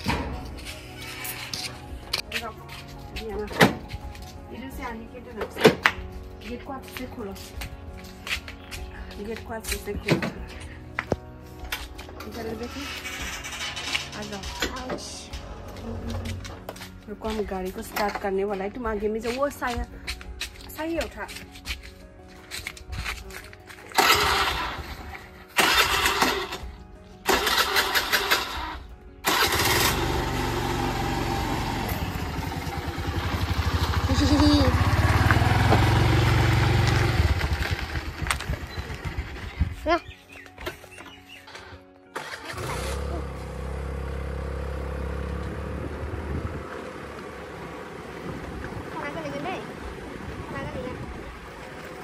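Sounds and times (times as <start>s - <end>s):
scooter engine starting and idling: 12.4s - 15.0s, 23.9s - 39.7s, 41.5s - 50.0s.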